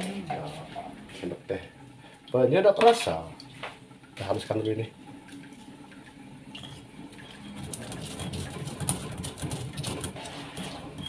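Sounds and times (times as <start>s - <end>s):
pestle grinding in stone mortar: 7.6s - 11.0s.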